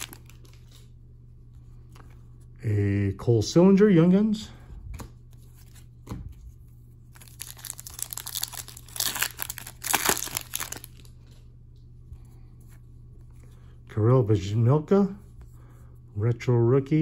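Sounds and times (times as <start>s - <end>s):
foil wrapper tearing and crinkling: 0.0s - 0.8s, 7.1s - 11.1s.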